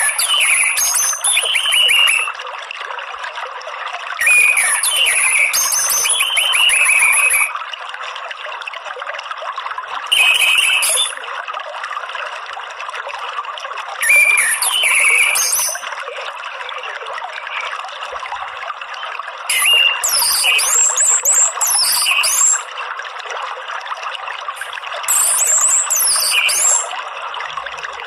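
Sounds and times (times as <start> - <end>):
water trickling: 0.0 - 28.0.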